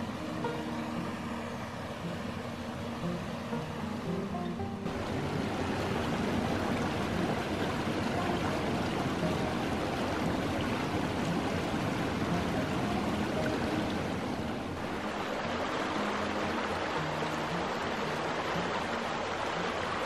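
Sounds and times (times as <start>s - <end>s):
creek rushing over rocks: 0.0s - 20.0s.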